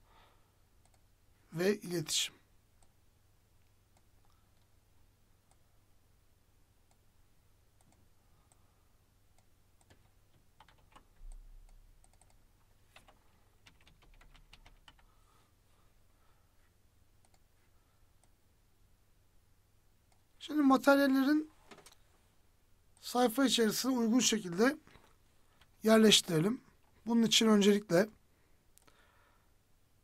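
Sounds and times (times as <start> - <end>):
low steady hum: 0.0 - 30.0
typing on computer keyboard: 9.8 - 11.4, 12.0 - 15.1.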